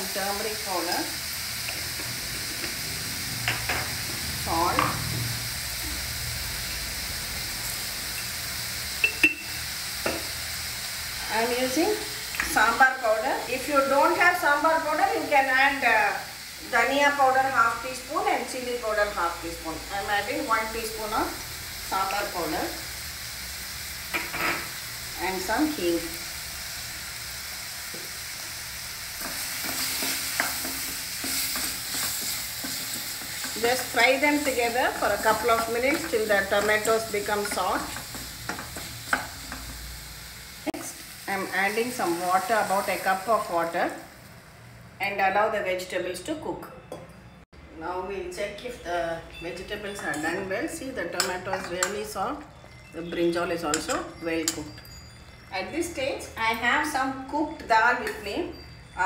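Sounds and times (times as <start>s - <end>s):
vegetables frying softly: 0.0s - 45.9s
sharp clinks with ring: 53.7s - 55.6s.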